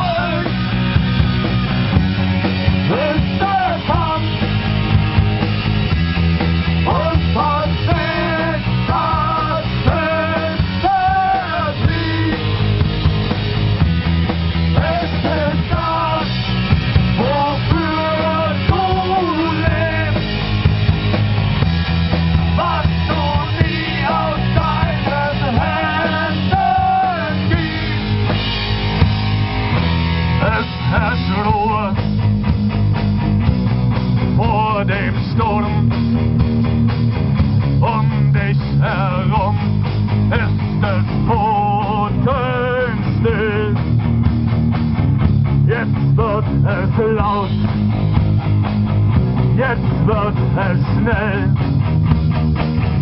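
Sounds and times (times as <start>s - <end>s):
man singing lead vocals: 0.0s - 0.8s, 2.7s - 5.3s, 6.7s - 13.0s, 14.5s - 20.7s, 22.2s - 28.5s, 30.2s - 32.3s, 34.3s - 36.2s, 37.6s - 44.0s, 45.6s - 47.8s, 49.4s - 51.6s
live rock band playing: 0.0s - 53.0s.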